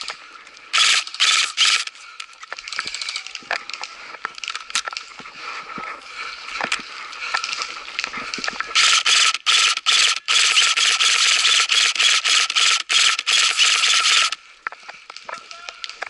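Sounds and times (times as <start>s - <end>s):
airsoft rifle full-auto bursts: 0.7s - 2.0s, 8.8s - 14.4s
footsteps crunching on forest floor: 1.9s - 8.8s.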